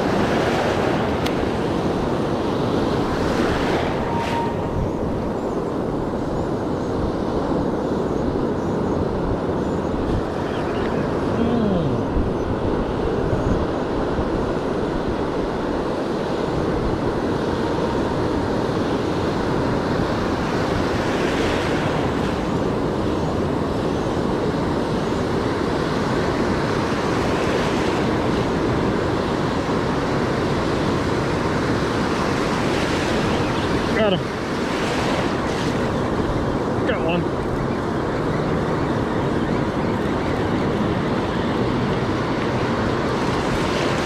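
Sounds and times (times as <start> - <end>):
ocean surf breaking: 0.0 - 7.8, 9.1 - 44.0
wind buffeting microphone: 0.0 - 44.0.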